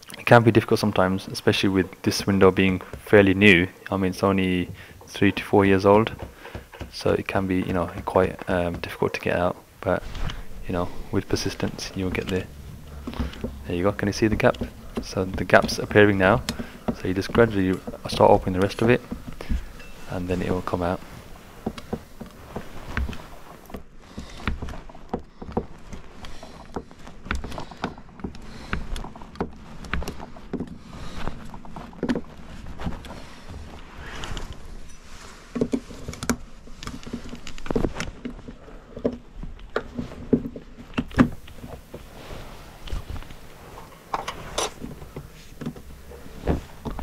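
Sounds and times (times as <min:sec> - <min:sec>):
low rumble: 0:09.8 - 0:16.5.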